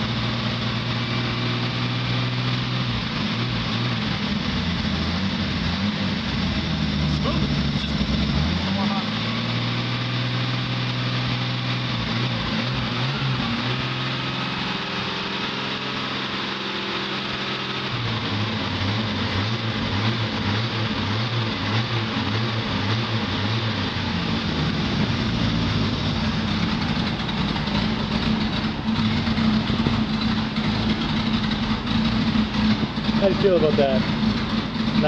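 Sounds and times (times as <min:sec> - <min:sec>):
engine idling unevenly: 0:00.0 - 0:35.0.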